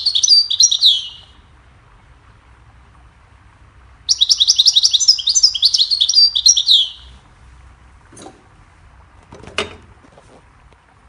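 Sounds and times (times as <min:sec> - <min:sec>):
finch twittering song: 0:00.0 - 0:01.4, 0:04.0 - 0:07.2.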